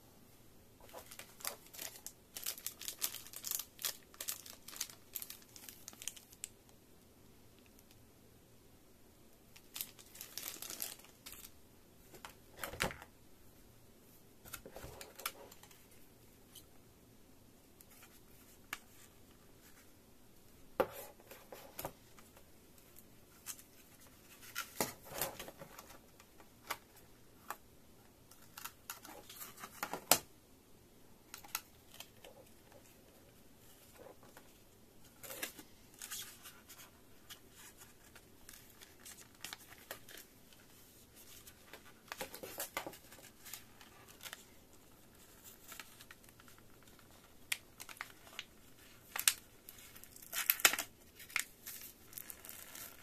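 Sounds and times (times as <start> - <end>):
plastic packaging clicks and crinkles: 0.8 - 6.6, 9.6 - 11.5, 45.2 - 53.0.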